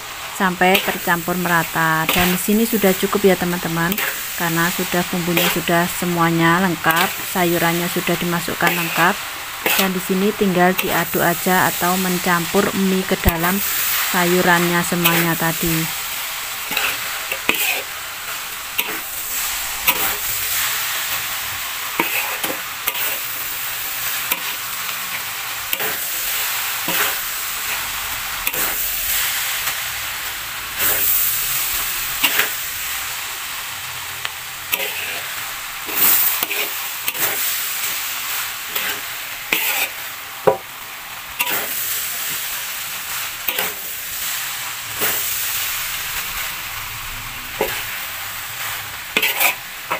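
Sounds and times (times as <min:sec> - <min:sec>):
noodles sizzling in a wok: 0:00.0 - 0:49.9
metal spatula scraping a pan: 0:08.6 - 0:10.0, 0:16.6 - 0:18.0, 0:21.9 - 0:23.4, 0:32.2 - 0:32.6, 0:34.7 - 0:37.4, 0:38.7 - 0:40.0, 0:49.1 - 0:49.9.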